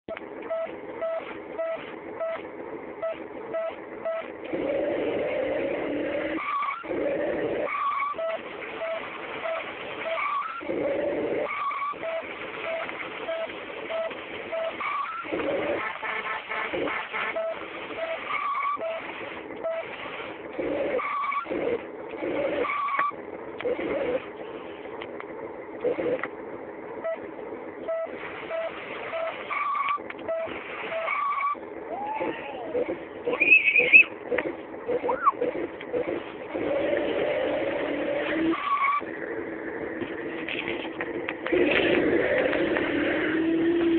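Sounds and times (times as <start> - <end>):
faint regular beeps: 0.1 - 4.4, 7.9 - 10.6, 11.6 - 15.3, 17.2 - 20.0, 27.0 - 31.6
engine revving: 3.5 - 24.6, 25.7 - 26.3, 27.8 - 43.9
tyre squeal: 30.9 - 34.2.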